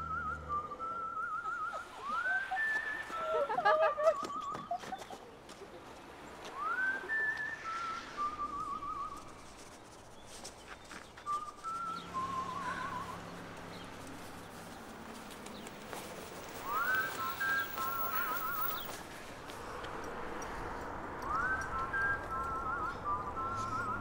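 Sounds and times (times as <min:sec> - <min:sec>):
person whistling a tune: 0:00.0 - 0:03.4, 0:06.6 - 0:09.4, 0:11.2 - 0:13.2, 0:16.6 - 0:18.9, 0:21.2 - 0:24.0.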